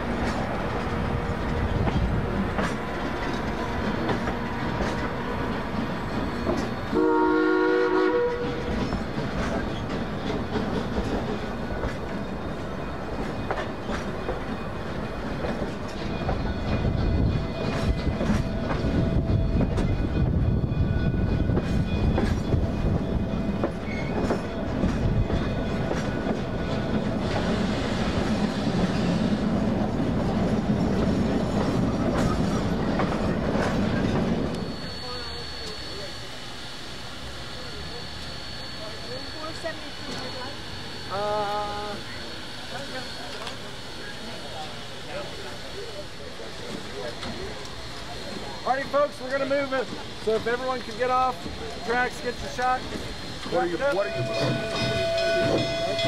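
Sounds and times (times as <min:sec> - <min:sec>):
train wheels clicking over rail joints: 0:00.0 - 0:07.2, 0:08.0 - 0:36.1, 0:42.0 - 0:56.0
steam locomotive whistle: 0:06.9 - 0:08.8, 0:53.9 - 0:56.0.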